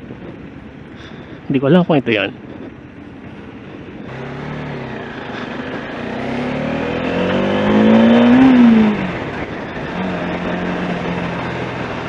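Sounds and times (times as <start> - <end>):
motorcycle engine accelerating: 2.6 - 12.0.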